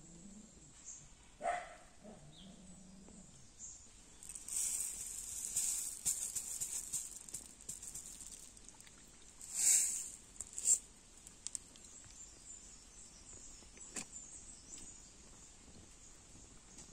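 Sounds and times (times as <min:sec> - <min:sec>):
dog barking: 0:01.4 - 0:02.3
pellets pattering on water: 0:04.2 - 0:12.1.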